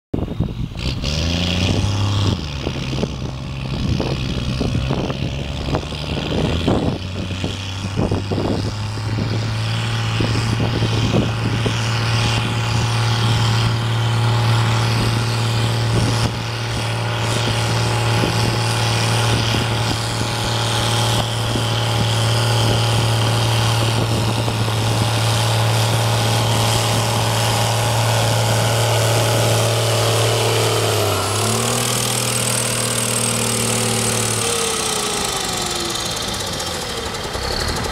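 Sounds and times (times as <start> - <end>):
tractor engine running hard: 0.1 - 37.9.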